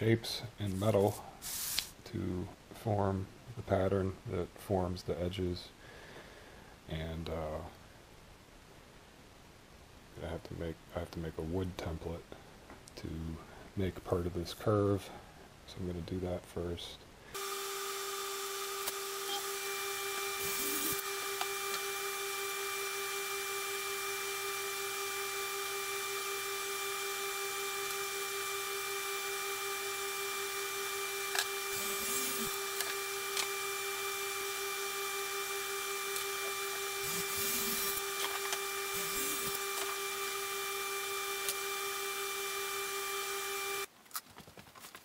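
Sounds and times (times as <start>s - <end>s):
dust collector humming and whining: 17.4s - 43.9s.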